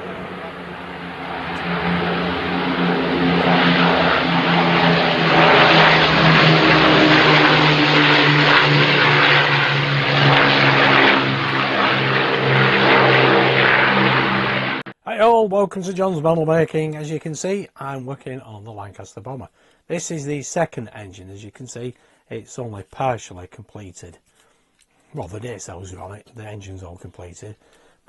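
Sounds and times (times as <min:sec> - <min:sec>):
propeller plane engines humming: 0:00.0 - 0:15.0.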